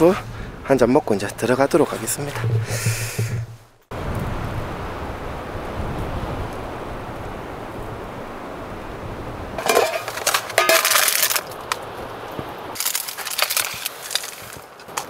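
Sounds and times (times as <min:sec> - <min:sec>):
wind: 0:00.0 - 0:15.0
plastic packaging crinkling: 0:09.6 - 0:11.8, 0:12.8 - 0:15.0.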